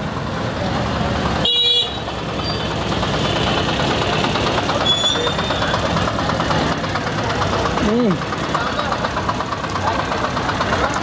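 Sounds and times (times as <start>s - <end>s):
street traffic noise: 0.0s - 11.0s
vehicle engine idling: 0.0s - 11.0s.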